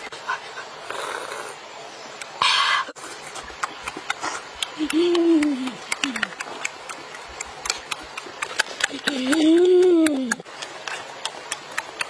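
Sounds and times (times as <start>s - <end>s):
person humming: 4.8s - 6.5s, 8.9s - 10.5s.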